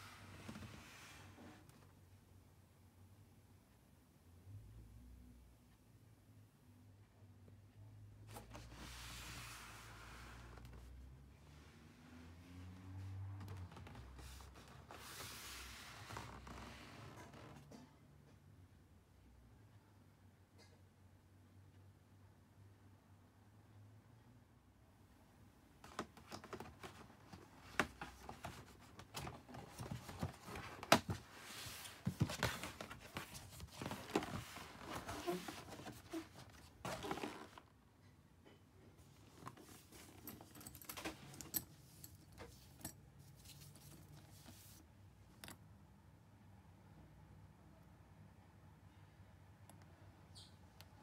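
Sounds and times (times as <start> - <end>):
cardboard box rustling and scraping: 27.7 - 37.7.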